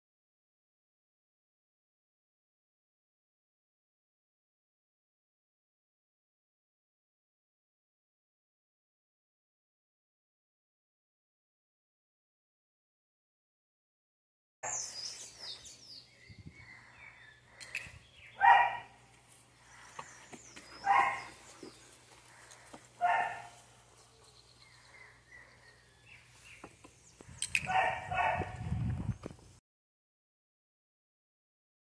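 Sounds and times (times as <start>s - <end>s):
birds chirping: 14.6s - 29.4s
puppy barking: 18.4s - 19.0s, 20.8s - 21.5s, 23.0s - 23.7s, 27.7s - 28.6s.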